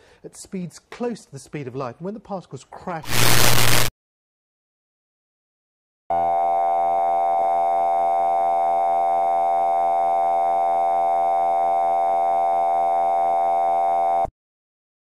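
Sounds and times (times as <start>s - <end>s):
steady buzzy test tone: 3.0s - 3.9s.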